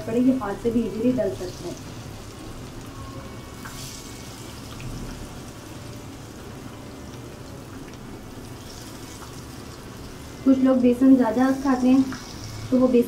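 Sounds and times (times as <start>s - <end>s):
fritters deep-frying in oil: 0.0s - 13.0s.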